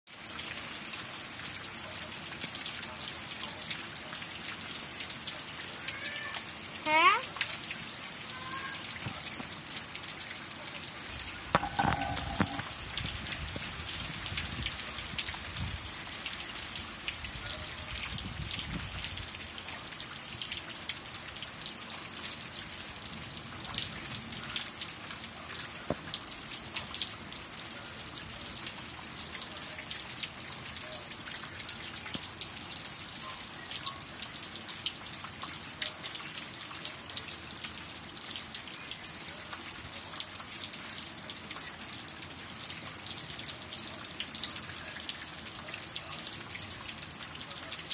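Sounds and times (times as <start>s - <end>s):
steady rainfall: 0.1s - 47.9s.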